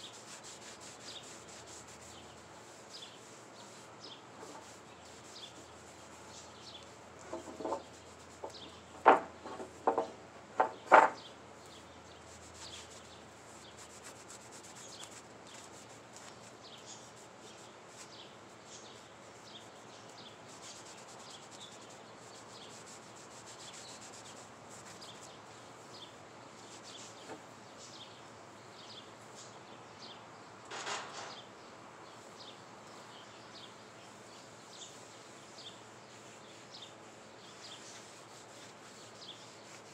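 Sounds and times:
wooden boards knocking: 0:09.0 - 0:11.2.

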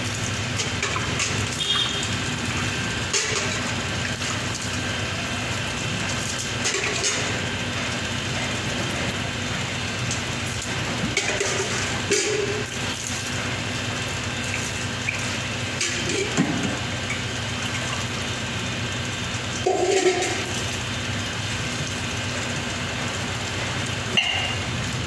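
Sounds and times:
machine hum: 0:00.0 - 0:25.0
water pouring and splashing: 0:00.0 - 0:25.0
metal pot clinking on bucket: 0:24.1 - 0:24.7.

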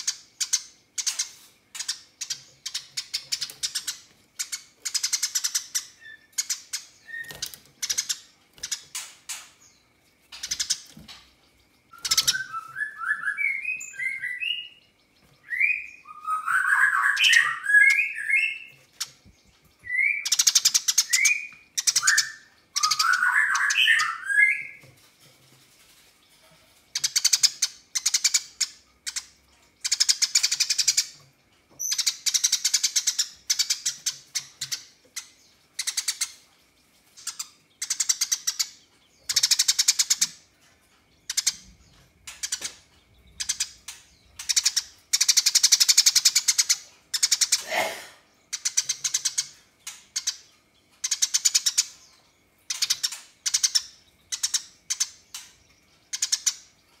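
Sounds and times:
sparrow chattering rattles: 0:00.0 - 0:14.5, 0:26.9 - 0:31.2, 0:31.8 - 0:36.5, 0:37.2 - 0:40.5, 0:41.2 - 0:47.9, 0:48.5 - 0:52.0, 0:52.6 - 0:56.8.

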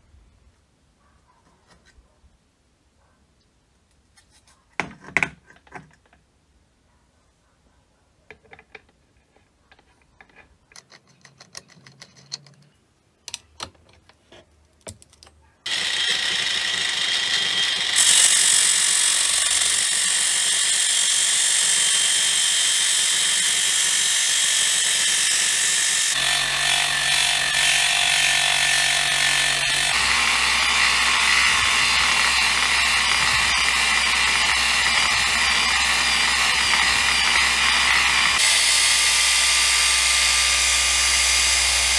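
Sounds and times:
angle grinder grinding metal: 0:15.7 - 0:41.9.

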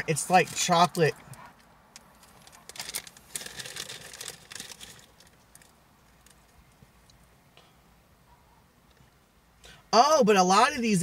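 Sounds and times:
foil snack bag crinkling: 0:02.3 - 0:06.4.

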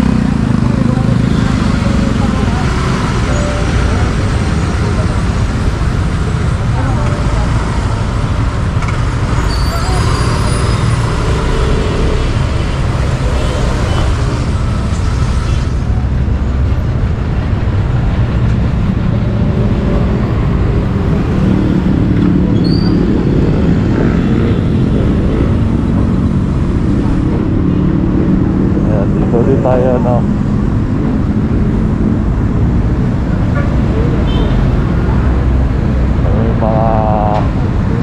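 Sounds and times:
road noise: 0:00.0 - 0:38.0
vehicle engine drone: 0:00.0 - 0:38.0
diesel bus engine: 0:24.6 - 0:38.0.

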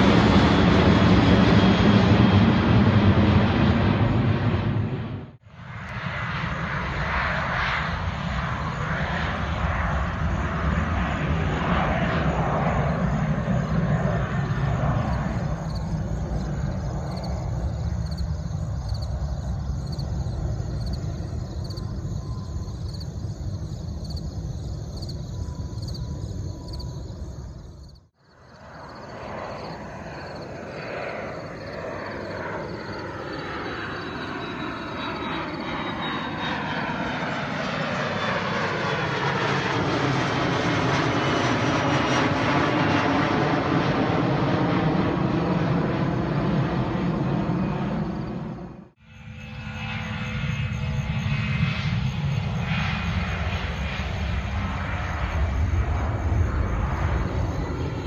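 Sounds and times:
jet airliner engines rumbling: 0:00.0 - 0:58.0
jet passing low overhead: 0:00.0 - 0:58.0.

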